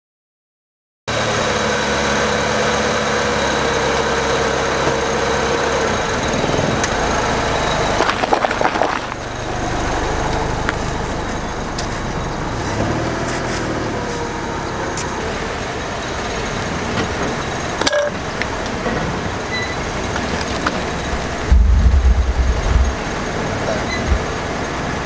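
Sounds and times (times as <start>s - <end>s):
car engine running: 1.2s - 25.0s
tyre crunching paper cups: 7.9s - 9.4s, 20.2s - 21.2s.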